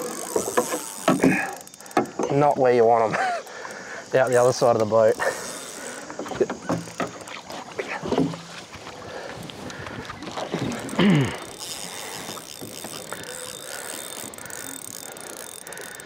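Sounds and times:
water noise around boat: 0.0s - 16.0s
wind: 0.0s - 16.0s
man groaning: 11.0s - 11.4s.

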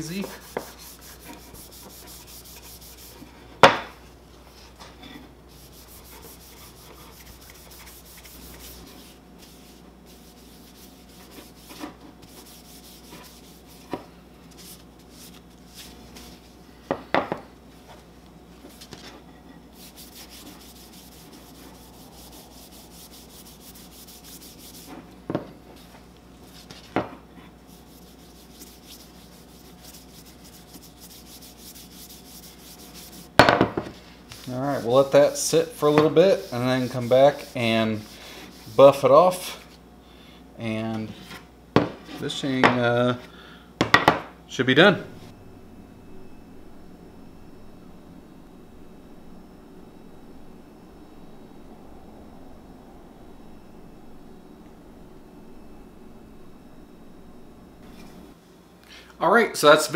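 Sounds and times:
paper towel scrubbing wood: 0.0s - 3.4s, 5.5s - 16.5s, 19.7s - 25.1s, 27.6s - 33.3s, 34.3s - 39.6s.

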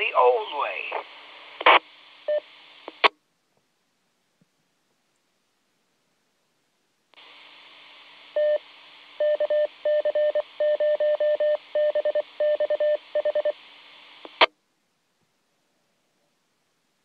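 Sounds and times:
radio background hiss: 0.0s - 3.2s, 7.2s - 9.8s, 13.0s - 14.5s.

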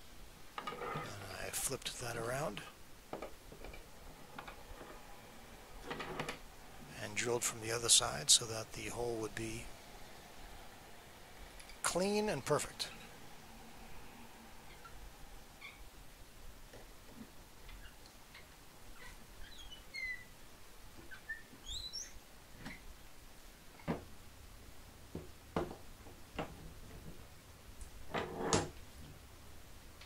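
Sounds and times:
faint bird chirps: 14.6s - 15.9s, 17.6s - 20.4s, 21.0s - 22.8s.

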